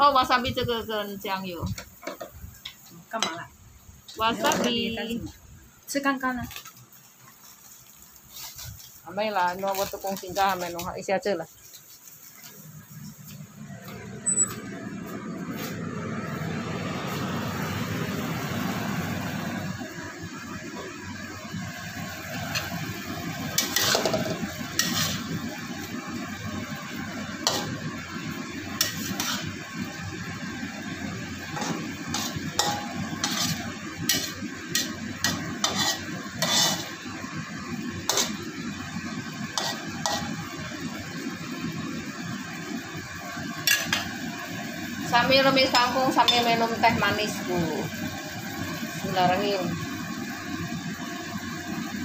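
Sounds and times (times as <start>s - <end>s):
vegetables sizzling in wok: 0.0s - 52.0s
metal ladle scraping wok: 7.4s - 9.0s, 22.3s - 40.8s, 43.6s - 44.2s.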